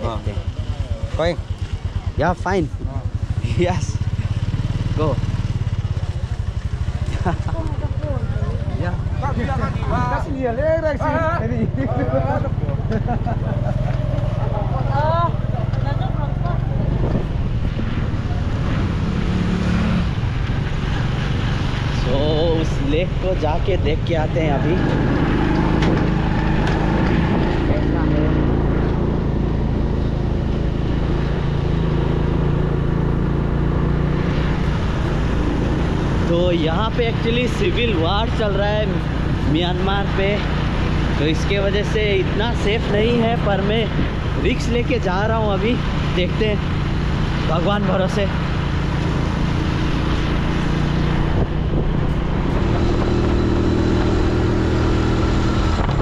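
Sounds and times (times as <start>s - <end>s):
road noise: 0.0s - 56.0s
vehicle engine humming: 0.0s - 56.0s
wind noise: 16.6s - 31.9s, 49.1s - 56.0s.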